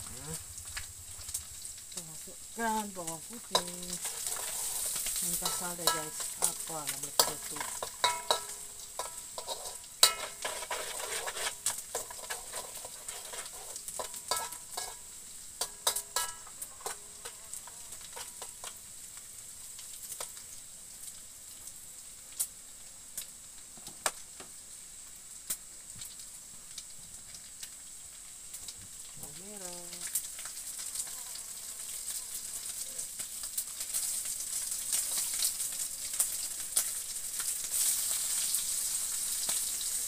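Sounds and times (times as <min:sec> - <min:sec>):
garlic sizzling in oil: 0:00.0 - 0:40.0
metal spatula scraping a wok: 0:03.5 - 0:18.8.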